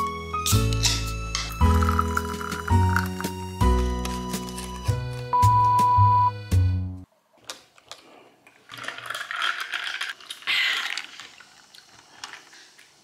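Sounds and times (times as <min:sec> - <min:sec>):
background music: 0:00.0 - 0:07.1
paper bag rustling: 0:03.8 - 0:05.2.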